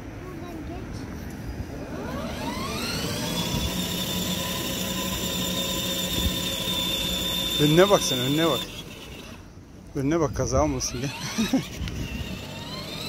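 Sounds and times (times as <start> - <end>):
toy car electric motor whining: 1.9 - 9.5, 10.5 - 13.0.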